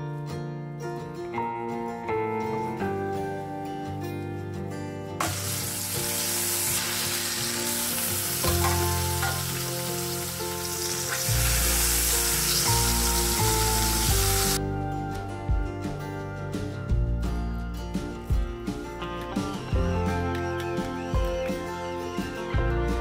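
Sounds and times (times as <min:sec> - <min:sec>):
background music: 0:00.0 - 0:23.0
meat sizzling in hot oil: 0:05.2 - 0:14.6.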